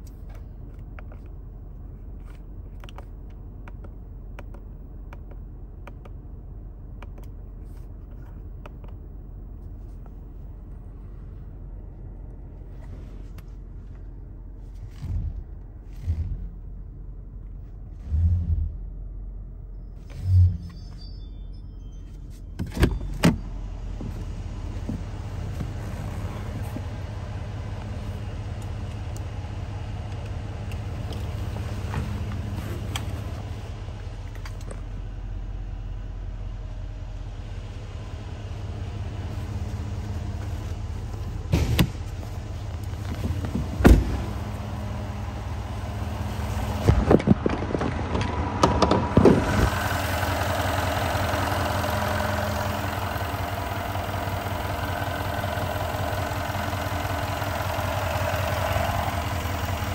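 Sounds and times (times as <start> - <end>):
car engine idling: 23.4 - 47.7, 48.4 - 59.9.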